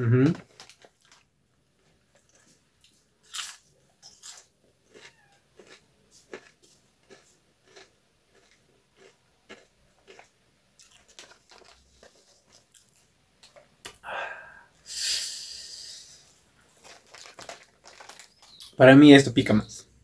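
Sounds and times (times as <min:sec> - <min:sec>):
person chewing chips: 0:00.4 - 0:13.6, 0:16.6 - 0:18.7
hissing breaths through teeth: 0:14.0 - 0:16.5.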